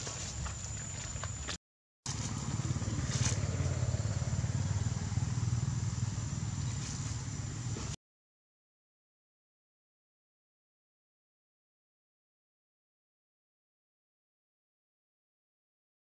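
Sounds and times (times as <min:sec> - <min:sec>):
low engine rumble: 0:02.1 - 0:08.0.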